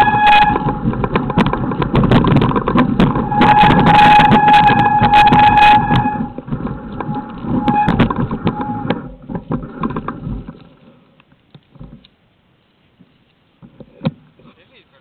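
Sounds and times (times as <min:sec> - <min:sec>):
low rumble on microphone: 0:00.0 - 0:11.1
bike parts rattling and clicking: 0:00.0 - 0:12.1.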